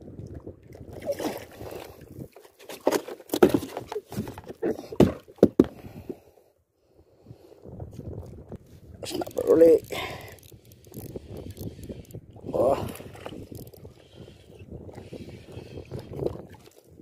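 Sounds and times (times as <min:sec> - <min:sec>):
water slapping boat hull: 0:00.2 - 0:05.8, 0:11.5 - 0:17.0.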